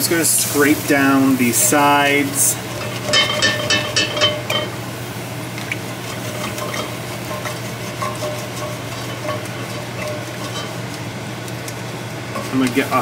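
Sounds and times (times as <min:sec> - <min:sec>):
sauce sizzling: 0:00.0 - 0:13.0
wooden spatula scraping pot: 0:06.0 - 0:10.8.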